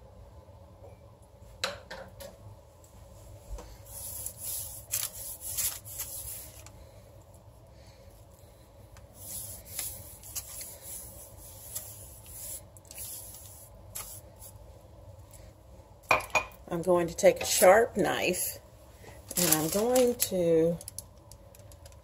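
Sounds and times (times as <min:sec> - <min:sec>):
hand brushing flour over dough: 0:03.6 - 0:06.6, 0:09.1 - 0:14.6.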